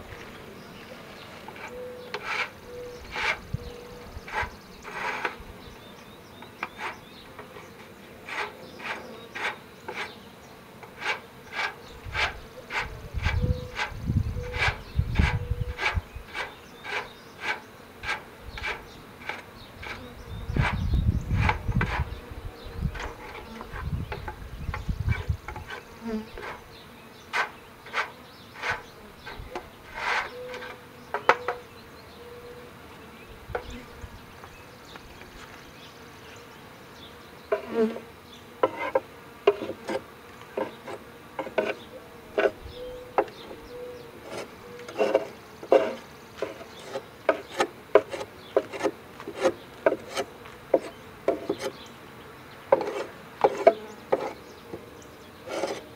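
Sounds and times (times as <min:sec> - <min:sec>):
bees buzzing: 0:00.0 - 0:55.9
wooden boards knocking and scraping: 0:40.6 - 0:41.8, 0:44.3 - 0:51.7, 0:52.7 - 0:54.4.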